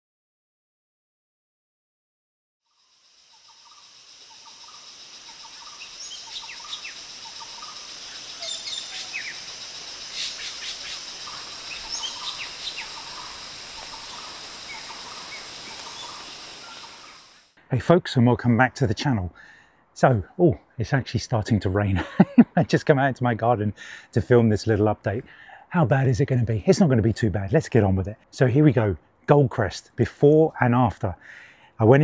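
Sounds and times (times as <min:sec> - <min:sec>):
steady outdoor hiss: 0:02.7 - 0:32.0
wild birds chirping and calling: 0:03.4 - 0:17.5.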